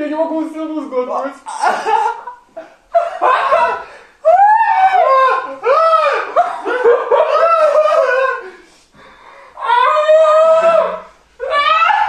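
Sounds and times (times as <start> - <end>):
man laughing hysterically: 1.6 - 8.6.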